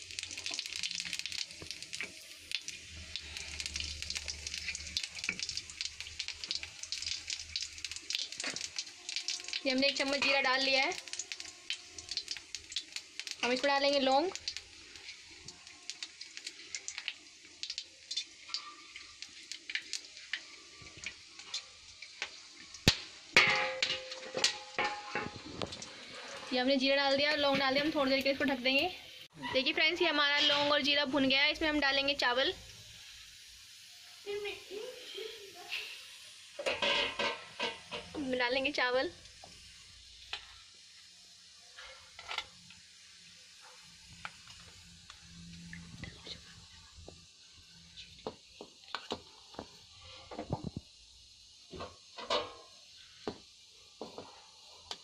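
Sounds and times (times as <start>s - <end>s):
seeds crackling in hot oil: 0.0s - 55.0s
metal lid clanking onto pan: 23.4s - 25.4s, 36.6s - 38.2s, 52.2s - 52.6s.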